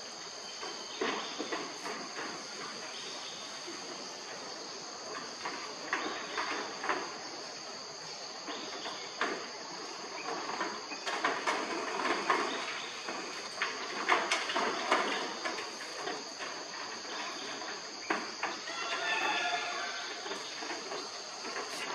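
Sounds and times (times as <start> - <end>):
insects droning: 0.0 - 21.9
monkeys scrambling on metal roof: 0.4 - 21.9.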